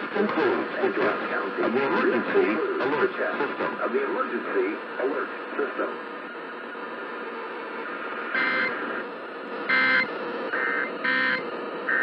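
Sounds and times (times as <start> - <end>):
faint constant whine: 0.0 - 12.0
radio static hiss: 0.0 - 12.0
buzzy two-tone warble: 8.3 - 8.8, 9.7 - 12.0.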